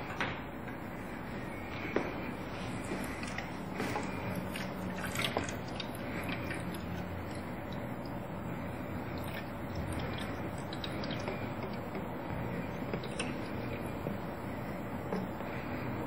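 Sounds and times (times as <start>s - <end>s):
water pouring into plastic tank: 2.9s - 14.3s.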